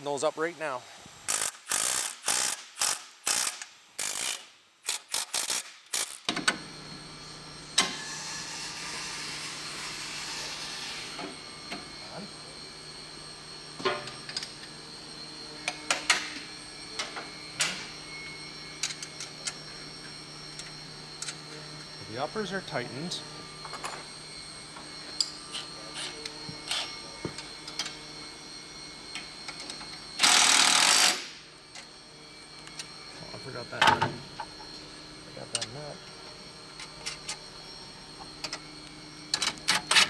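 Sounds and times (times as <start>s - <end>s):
ratchet wrench clicking: 1.3s - 6.2s
tool clicks and clanks: 1.3s - 6.6s, 25.2s - 28.0s, 29.1s - 31.9s, 35.5s - 35.8s, 39.3s - 40.0s.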